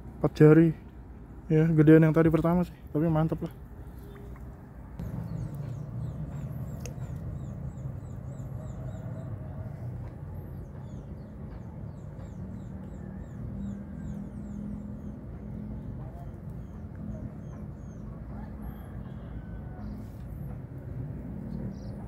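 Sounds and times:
steady low rumble: 3.6 - 19.0.

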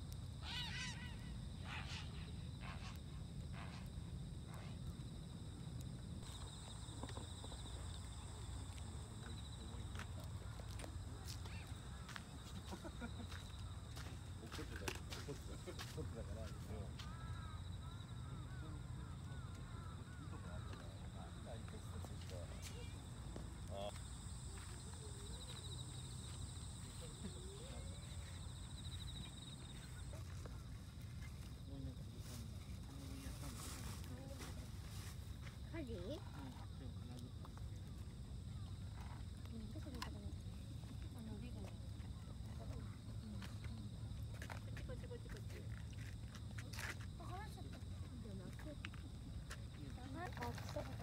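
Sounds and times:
high insect trill: 0.0 - 51.0
light footsteps: 8.6 - 17.3.

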